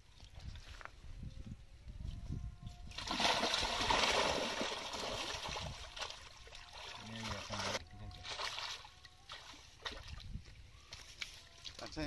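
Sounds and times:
pond water splashing: 2.9 - 12.0.

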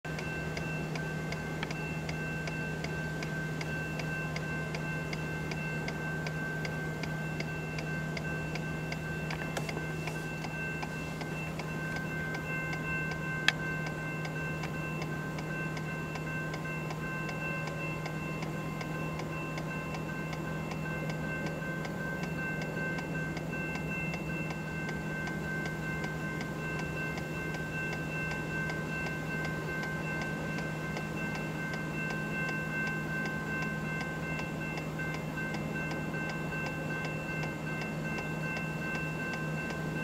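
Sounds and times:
steady ringing tone: 0.0 - 40.0.

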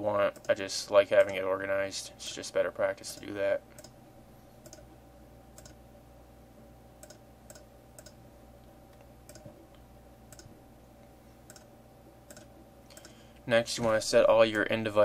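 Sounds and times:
steady hum: 0.0 - 15.0
computer mouse clicking: 3.1 - 4.0, 4.6 - 4.8, 5.6 - 5.8, 7.0 - 8.2, 8.9 - 10.5, 11.5 - 11.7, 12.3 - 13.2.

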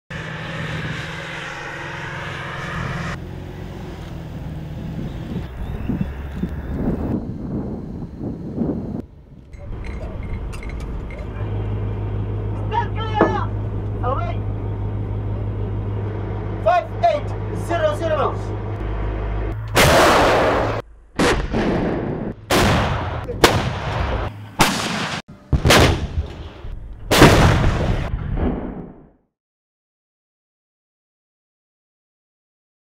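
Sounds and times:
tracked vehicle diesel engine: 0.1 - 20.8
howitzer firing with rumbling decay: 19.8 - 29.0.

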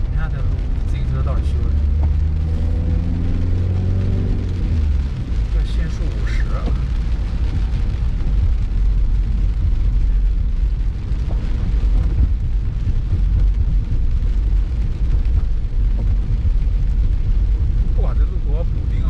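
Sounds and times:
car driving on wet road: 0.0 - 19.0
rain on car: 0.0 - 19.0.

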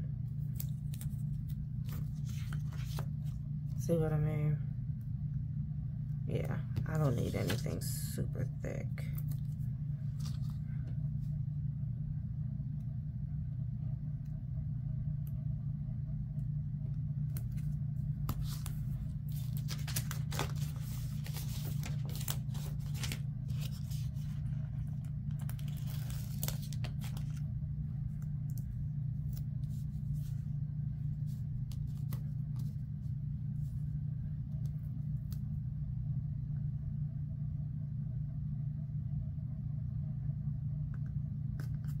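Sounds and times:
steady low hum: 0.0 - 42.0
paper stickers rustling: 0.4 - 3.4, 7.0 - 7.9, 17.4 - 27.4.

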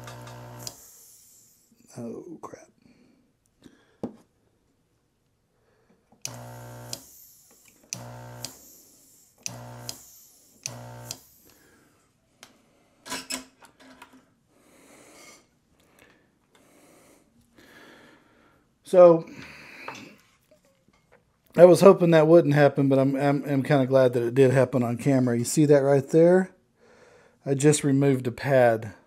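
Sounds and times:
vacuum pump buzzing: 0.0 - 1.6, 6.2 - 11.6
sharp clicks: 6.2 - 8.7, 9.4 - 10.0, 10.6 - 11.3.

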